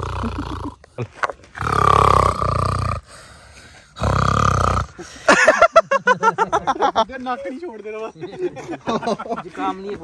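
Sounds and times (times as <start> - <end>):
person imitating lion roar: 0.0 - 0.8, 1.6 - 3.1, 4.0 - 5.0.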